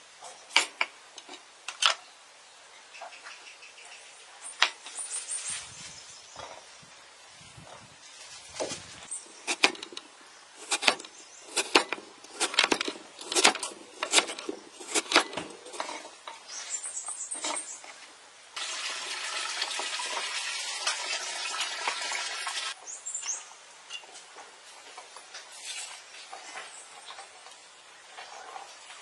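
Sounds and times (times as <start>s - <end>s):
knife chopping on wooden board: 10.6s - 15.5s.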